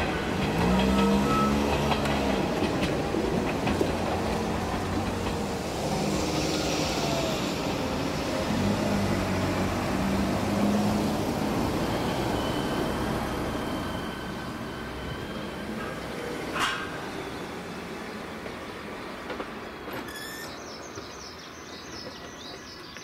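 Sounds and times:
diesel railcar engine running: 0.0s - 22.8s
wheel and rail noise: 0.0s - 23.0s
thin high squeal: 19.9s - 20.6s.

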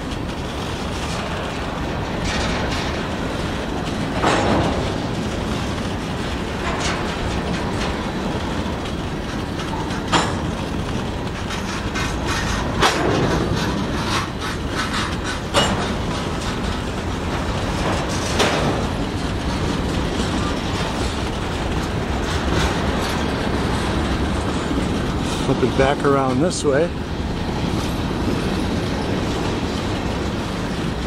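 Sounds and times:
steel wheels rumbling on rail: 0.0s - 31.0s
sharp knock of rail cars: 2.0s - 26.4s.

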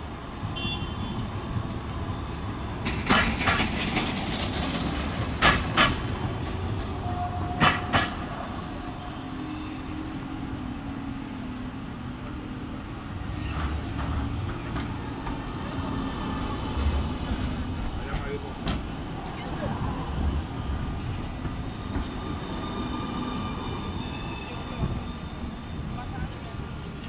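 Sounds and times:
low hum of approaching tram: 0.0s - 27.0s
tram running past: 0.0s - 27.0s
wheels clacking over rail joint: 2.8s - 8.4s.

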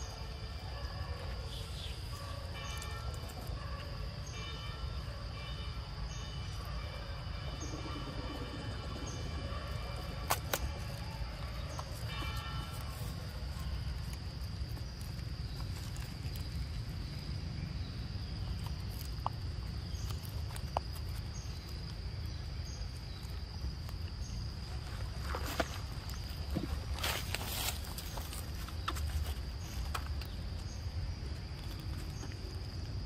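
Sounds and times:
high insect drone: 0.0s - 33.0s
low rumble: 6.4s - 11.8s.

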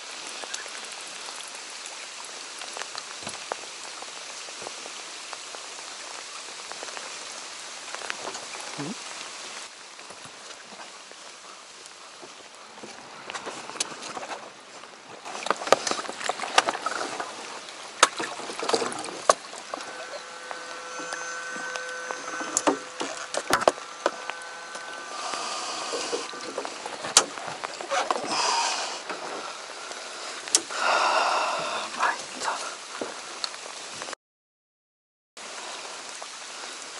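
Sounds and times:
water splashing: 0.0s - 34.2s
steady whine: 16.8s - 31.9s.

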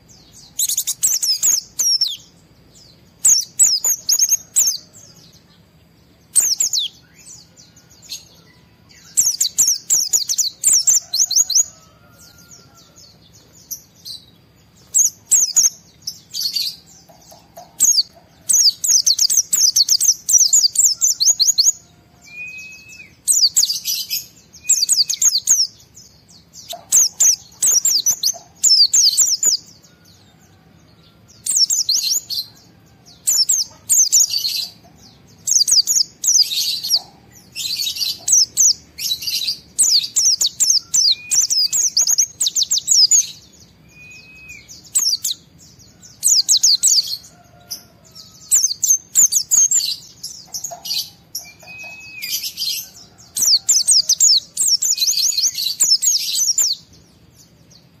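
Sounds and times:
bird twittering: 0.0s - 5.2s, 6.3s - 30.3s, 31.4s - 32.6s, 33.2s - 47.4s, 48.1s - 56.9s
bird whistled notes: 22.2s - 24.0s, 40.7s - 42.0s, 43.8s - 45.3s, 51.4s - 52.6s.

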